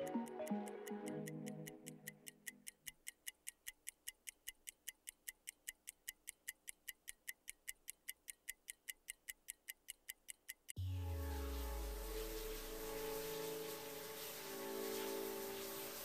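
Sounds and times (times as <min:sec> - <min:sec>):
music: 0:00.0 - 0:02.2, 0:10.8 - 0:16.0
fast even ticking: 0:00.0 - 0:10.8.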